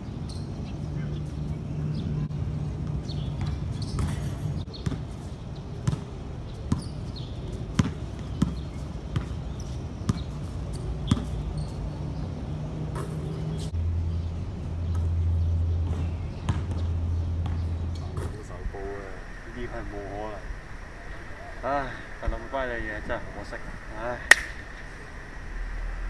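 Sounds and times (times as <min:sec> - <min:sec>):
steady low hum: 0:13.7 - 0:26.0.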